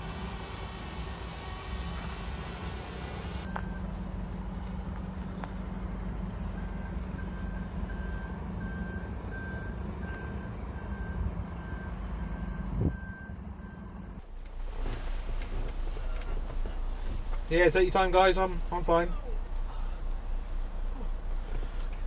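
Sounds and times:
reversing alarm beeping: 3.4s - 4.0s, 6.5s - 14.2s
steady low rumble: 10.5s - 22.0s.

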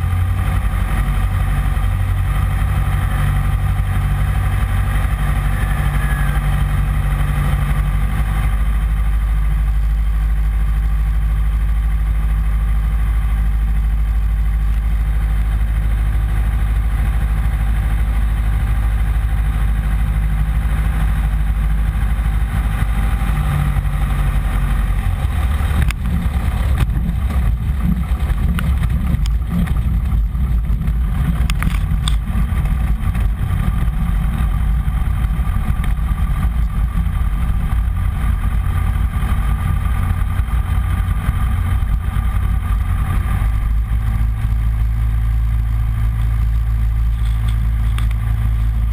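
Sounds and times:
small plane engine and propeller: 0.0s - 48.9s.

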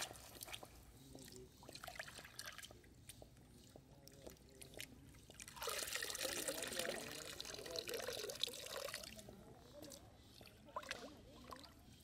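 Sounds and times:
small splashes in shallow water: 0.0s - 2.8s
light water drips: 0.0s - 12.0s.

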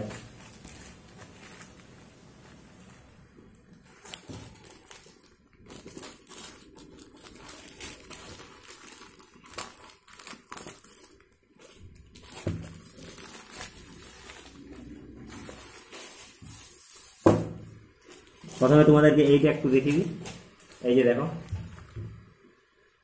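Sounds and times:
plastic bag tearing and crinkling: 0.0s - 22.0s.

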